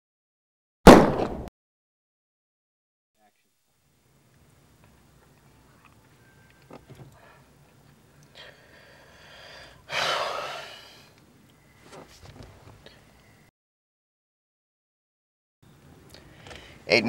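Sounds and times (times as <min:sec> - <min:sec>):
quiet breathing: 0:07.0 - 0:11.2, 0:12.8 - 0:13.4, 0:16.2 - 0:16.9.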